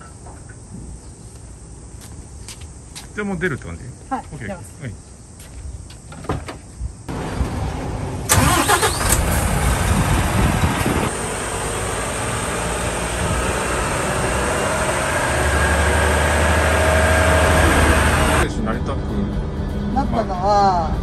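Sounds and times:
diesel truck engine driving: 0:07.1 - 0:20.1.

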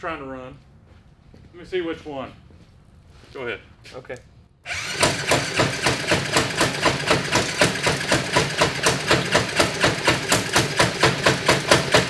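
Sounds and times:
engine knocking: 0:04.7 - 0:12.0
go-kart engine running roughly: 0:04.7 - 0:12.0.

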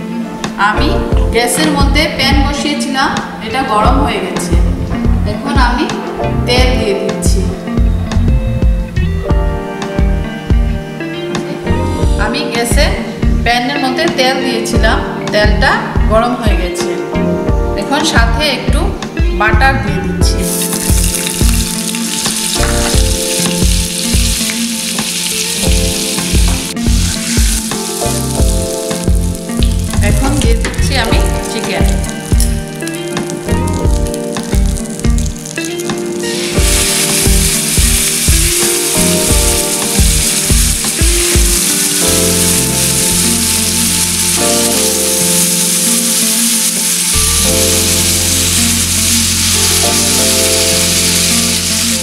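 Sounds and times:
background music: 0:00.0 - 0:52.0
butter sizzling in frying pan: 0:20.4 - 0:52.0.

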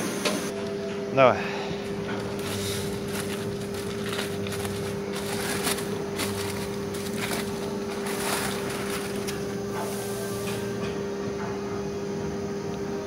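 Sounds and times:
steady machine hum: 0:00.0 - 0:13.0
paper wrapping rustling: 0:02.2 - 0:09.7.

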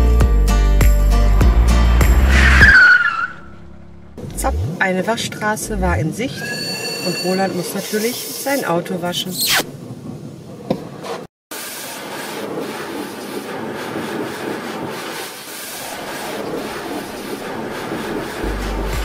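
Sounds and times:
water spraying against car: 0:11.6 - 0:19.0.

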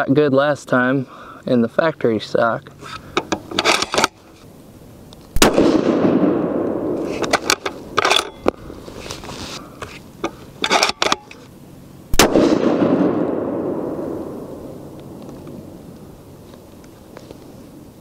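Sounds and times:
rifle shots with echo: 0:05.4 - 0:07.0, 0:12.1 - 0:14.8.

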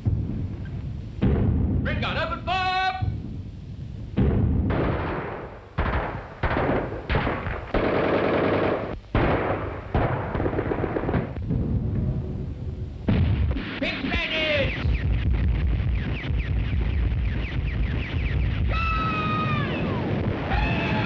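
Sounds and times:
machine gun bursts: 0:05.8 - 0:08.9.

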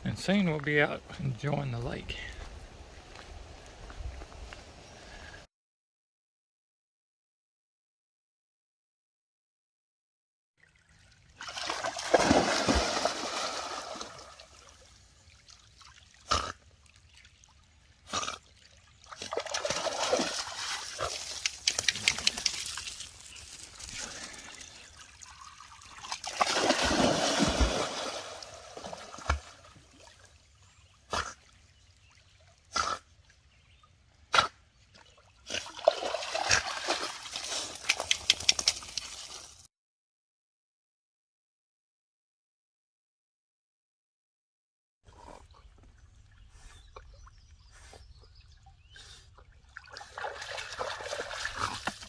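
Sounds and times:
dog splashing in water: 0:11.4 - 0:14.7, 0:19.0 - 0:24.5, 0:25.3 - 0:30.1, 0:35.5 - 0:39.5, 0:49.8 - 0:52.0.

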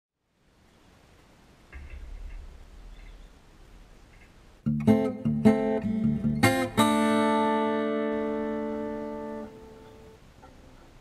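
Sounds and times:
acoustic guitar strummed chords: 0:04.6 - 0:10.2.

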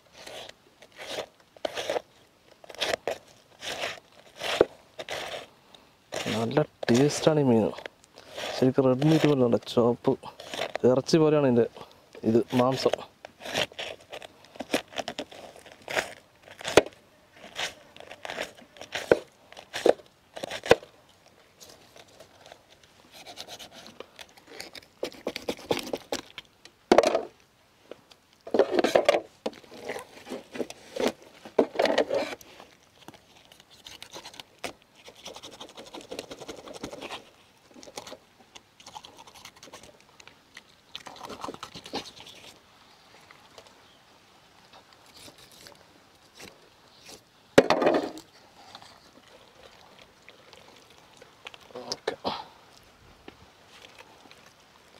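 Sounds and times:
knife scraping fish scales: 0:00.1 - 0:05.5, 0:08.2 - 0:09.4, 0:12.4 - 0:16.8, 0:22.4 - 0:26.3, 0:33.2 - 0:37.3.

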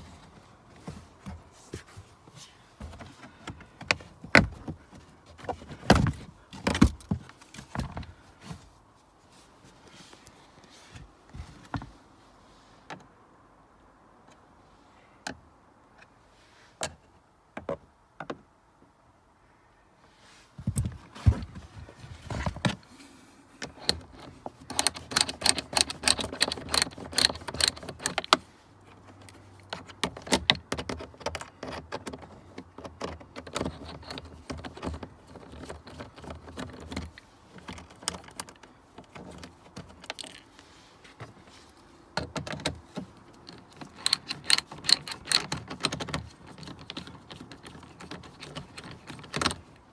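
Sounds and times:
ratcheting screwdriver clicking: 0:23.7 - 0:28.4, 0:43.4 - 0:49.6.

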